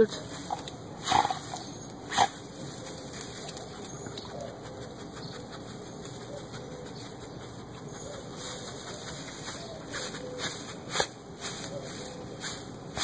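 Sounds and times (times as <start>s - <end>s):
leaves rustling and crackling: 0.0s - 4.2s, 8.1s - 13.0s.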